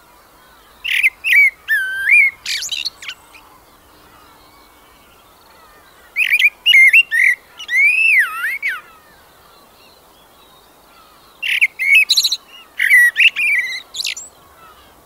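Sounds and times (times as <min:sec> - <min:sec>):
songbird singing: 0:00.0 - 0:15.0.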